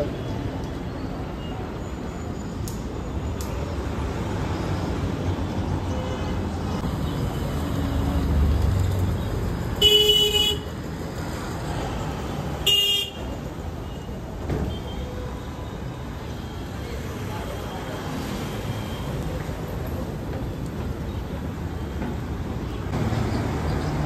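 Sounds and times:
street traffic rumble: 0:00.0 - 0:24.0
vehicle horn honking: 0:09.8 - 0:10.6, 0:12.7 - 0:13.2.

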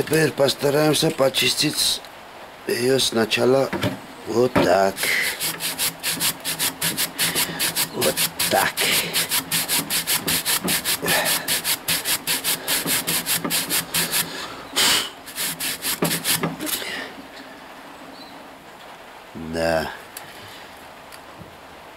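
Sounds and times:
rapid rasping scrubbing on metal: 0:05.0 - 0:14.4, 0:15.2 - 0:16.7.

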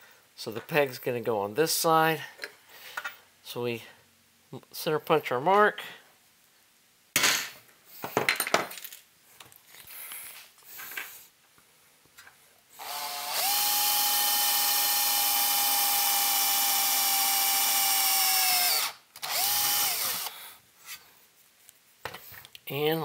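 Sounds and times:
cordless drill whining: 0:12.8 - 0:20.4.

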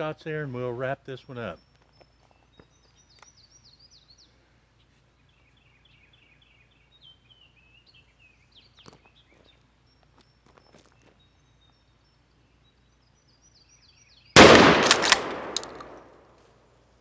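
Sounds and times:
faint birdsong: 0:00.0 - 0:17.0
small click: 0:15.0 - 0:16.0.

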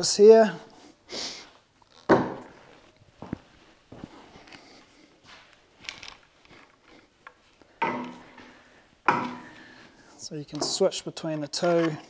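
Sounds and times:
footsteps: 0:01.9 - 0:10.0
tripod knocks and clatters: 0:02.0 - 0:02.5, 0:07.8 - 0:09.6.

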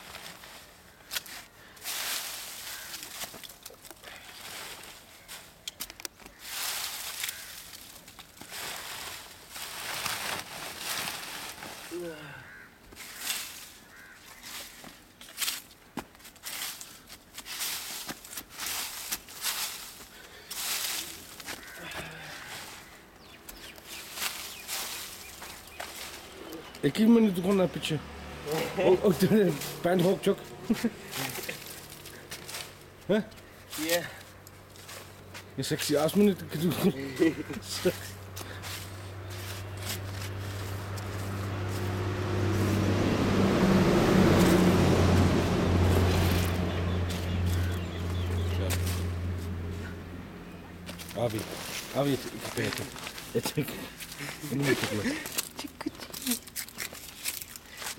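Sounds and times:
dry leaves rustling and crackling: 0:00.0 - 0:57.9
vehicle engine humming: 0:20.6 - 0:57.9.

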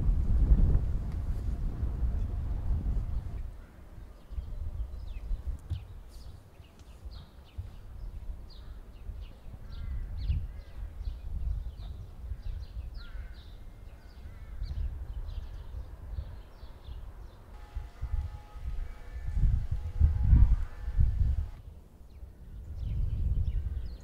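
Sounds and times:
small songbirds chirping: 0:04.0 - 0:17.5, 0:22.0 - 0:24.0.

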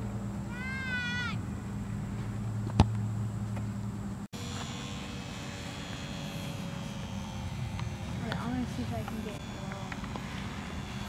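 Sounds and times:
model airplane motor buzzing: 0:04.4 - 0:11.0.

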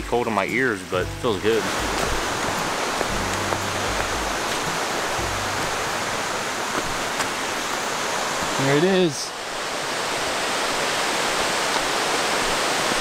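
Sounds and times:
waterfall rushing: 0:00.0 - 0:13.0
footsteps on trail: 0:01.6 - 0:08.6.

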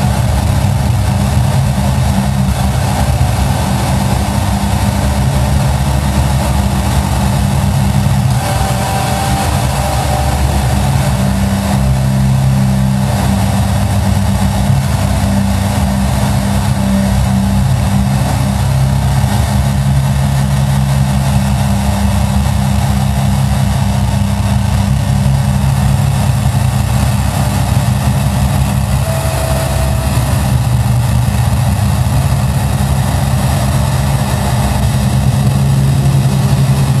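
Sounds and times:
low drone with hiss: 0:00.0 - 0:37.0
brief higher tone: 0:28.8 - 0:30.8.

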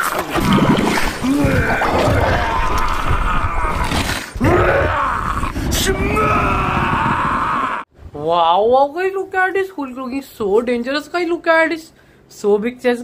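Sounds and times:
man groaning and roaring: 0:01.2 - 0:07.9.

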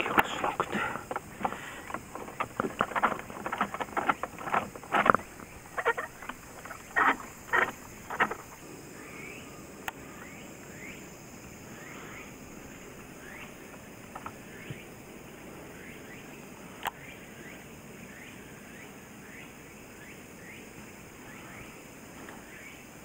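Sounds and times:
knocks and clatter on boat: 0:00.0 - 0:08.5.

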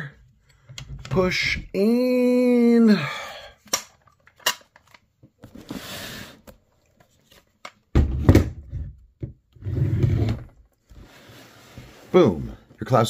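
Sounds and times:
soft scraping rub: 0:10.9 - 0:12.4.

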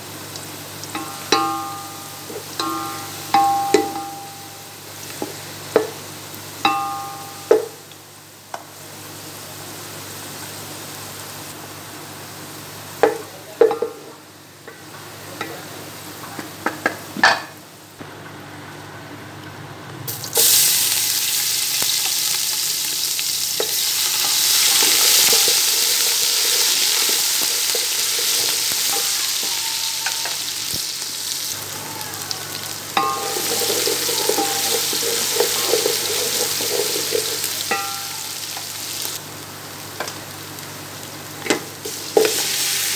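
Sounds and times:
onions frying in oil: 0:00.0 - 0:18.1, 0:20.0 - 0:42.9
loud sizzle of paste: 0:20.1 - 0:42.9.

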